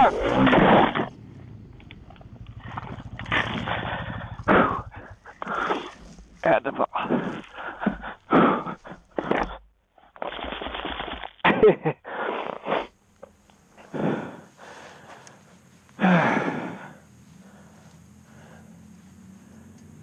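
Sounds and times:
man grunting and groaning: 0:00.0 - 0:01.0, 0:03.6 - 0:09.4
heavy ragged breathing: 0:00.0 - 0:01.6, 0:02.5 - 0:09.6, 0:12.0 - 0:20.0.

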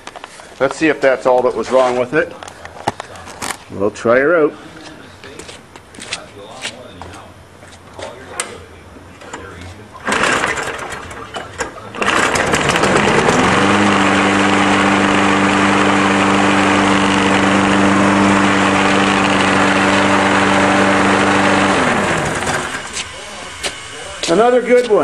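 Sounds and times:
lawn mower engine running: 0:10.0 - 0:25.0.

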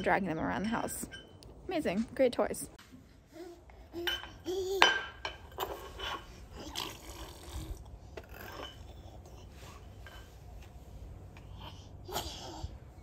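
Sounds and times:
metal cups clinking and scraping: 0:04.0 - 0:06.4.

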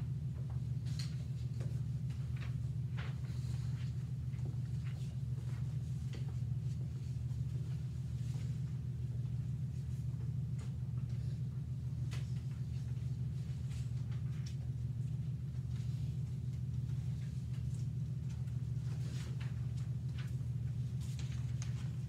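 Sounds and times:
low room hum: 0:00.0 - 0:22.0
paper and pencil rustles: 0:15.6 - 0:22.0.

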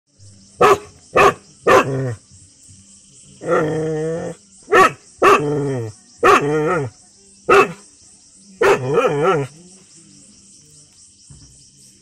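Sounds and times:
dog barking: 0:00.6 - 0:02.1, 0:04.7 - 0:05.5, 0:06.2 - 0:06.9, 0:07.5 - 0:07.8, 0:08.6 - 0:09.5.

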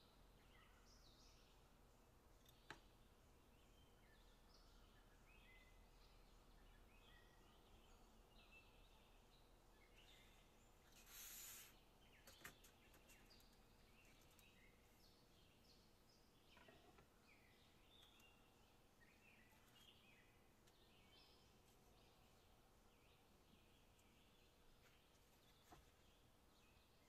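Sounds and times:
faint bird chirping: 0:00.0 - 0:27.0
brief hiss: 0:10.9 - 0:11.8.

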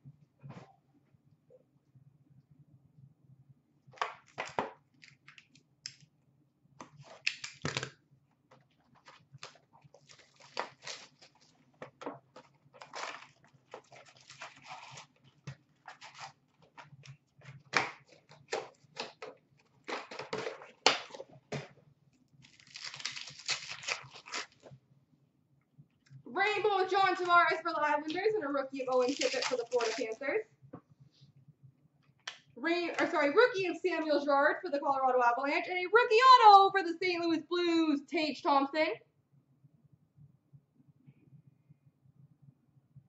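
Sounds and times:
foil wrappers tearing and crinkling: 0:09.0 - 0:11.6, 0:12.8 - 0:15.2, 0:15.8 - 0:16.8, 0:22.4 - 0:24.7, 0:28.8 - 0:30.2.

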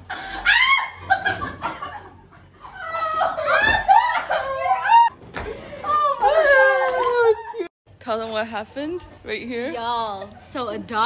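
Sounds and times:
women laughing and squealing: 0:00.0 - 0:07.7.

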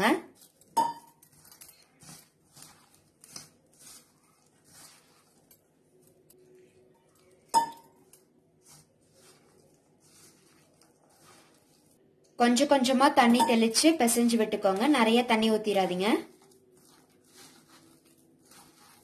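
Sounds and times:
hand mixing food in a bowl: 0:00.0 - 0:19.0
metallic clink against bowl: 0:07.5 - 0:07.9.

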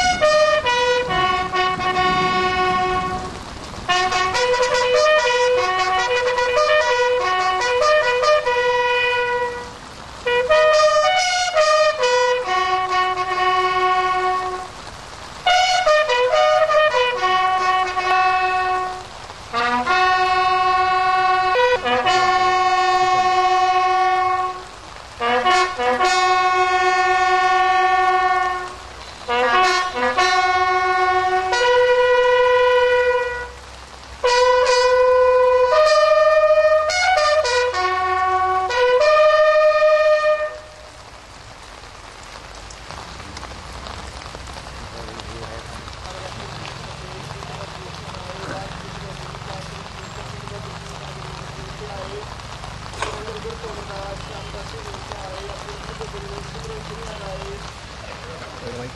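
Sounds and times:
bugle playing: 0:00.0 - 0:14.8, 0:15.4 - 0:41.0.

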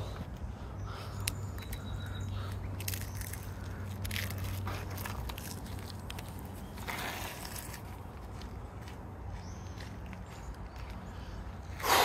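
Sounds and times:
crackers crunching between fingers: 0:00.4 - 0:09.0.

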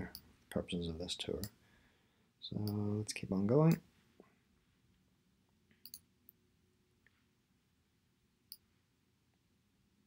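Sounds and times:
faint computer mouse clicks: 0:05.8 - 0:06.1.

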